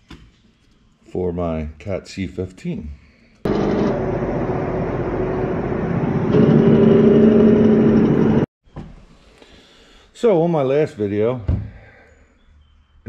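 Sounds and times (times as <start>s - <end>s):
heavy truck engine running: 3.5s - 8.5s.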